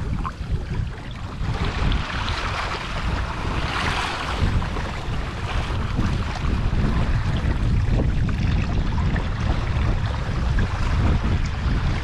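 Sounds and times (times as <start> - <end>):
water rushing along a hull: 0.0 - 12.0
wind buffeting microphone: 0.0 - 12.0.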